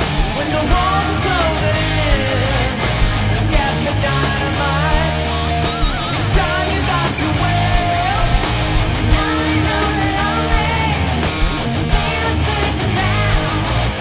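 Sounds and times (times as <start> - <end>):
steady drum beat: 0.0 - 13.9
bass guitar: 0.0 - 14.0
distorted electric guitars: 0.0 - 14.0.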